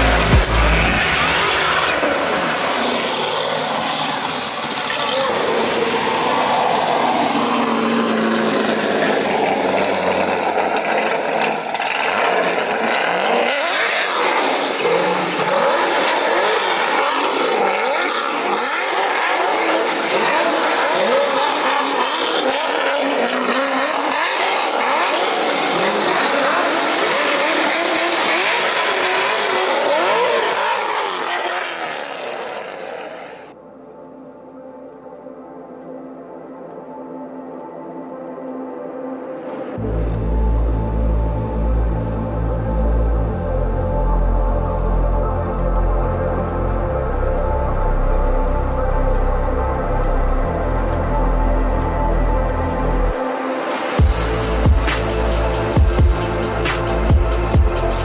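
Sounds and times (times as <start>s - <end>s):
car engine revving hard: 0.0s - 33.5s, 52.0s - 58.0s.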